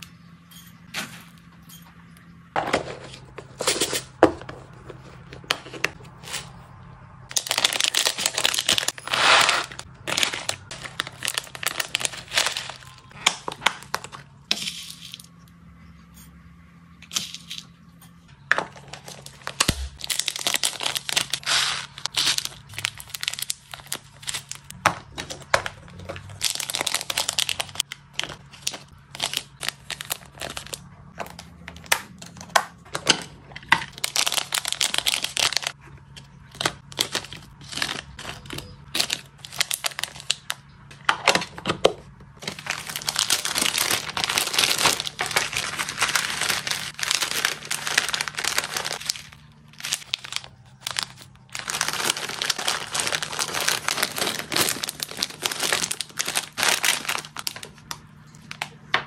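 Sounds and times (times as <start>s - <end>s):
plastic bags crinkling: 7.3s - 15.3s, 18.5s - 40.6s, 42.4s - 58.9s.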